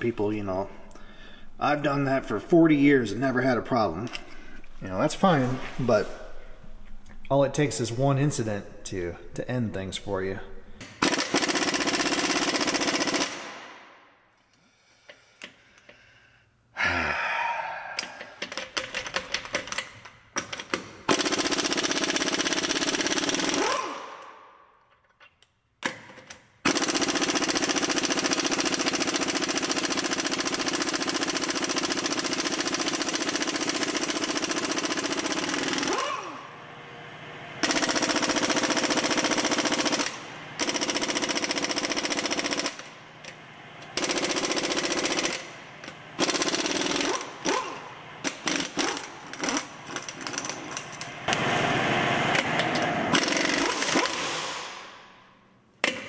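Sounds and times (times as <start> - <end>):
pneumatic impact wrench hammering: 10.8 - 14.0, 18.0 - 24.5, 25.2 - 36.6, 37.6 - 51.6, 52.3 - 56.0.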